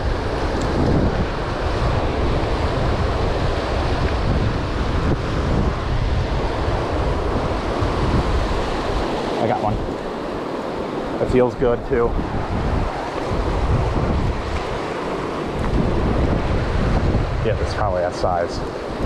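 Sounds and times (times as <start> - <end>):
wind buffeting microphone: 0.0 - 19.0
river rapids rushing: 6.6 - 11.5.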